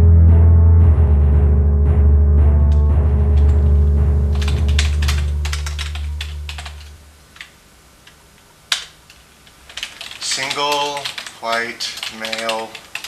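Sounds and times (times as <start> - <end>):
low music: 0.0 - 7.2
typing on computer keyboard: 4.3 - 7.5, 8.7 - 13.0.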